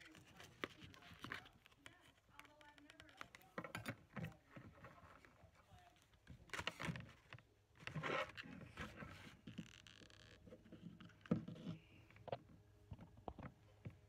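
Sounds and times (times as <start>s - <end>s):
cardboard rustling and scraping: 0.0s - 2.9s, 4.4s - 12.0s.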